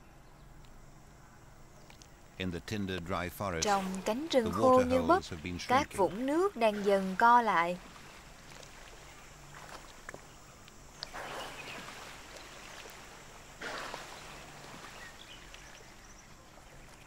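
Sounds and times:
water sloshing and splashing: 0:03.6 - 0:04.4, 0:05.2 - 0:17.0
elephant wading through water: 0:11.0 - 0:17.0.

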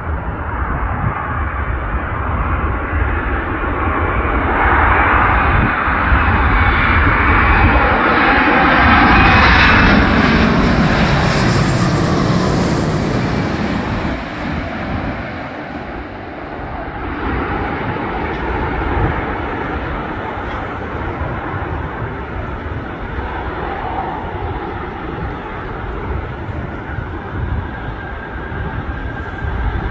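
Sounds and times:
jet engines passing overhead: 0:00.0 - 0:29.9.

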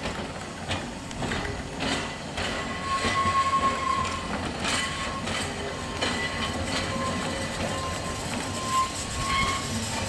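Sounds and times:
tram wheels clicking over rail joints: 0:00.0 - 0:10.0
high wheel squeal: 0:02.4 - 0:10.0.

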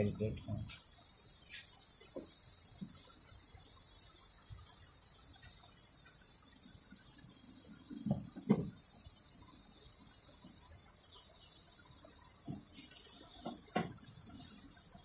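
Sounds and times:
steady high hiss: 0:00.0 - 0:15.0
soft knocks: 0:08.0 - 0:08.8.

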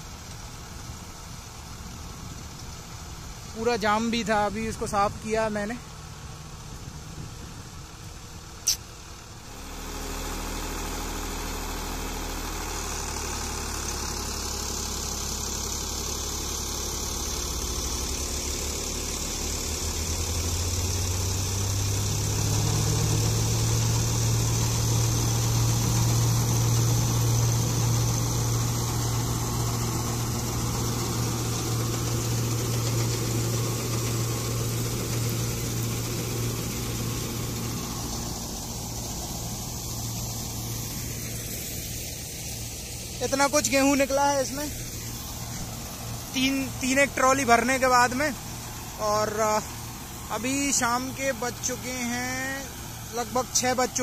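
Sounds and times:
steady hiss: 0:00.0 - 0:54.0
tractor engine running under load: 0:00.0 - 0:54.0
sharp click: 0:08.7 - 0:08.9.

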